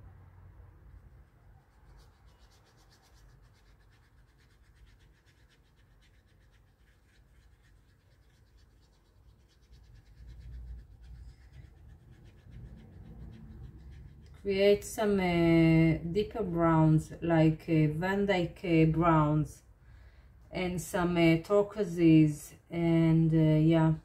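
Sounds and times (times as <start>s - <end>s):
paintbrush scratching and rubbing: 0.9s - 15.2s.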